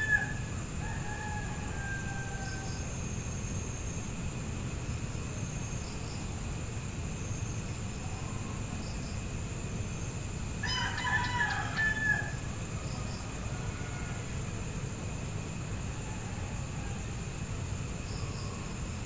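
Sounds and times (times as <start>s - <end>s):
rooster crowing: 0.0s - 2.9s, 10.6s - 14.6s, 15.8s - 17.4s.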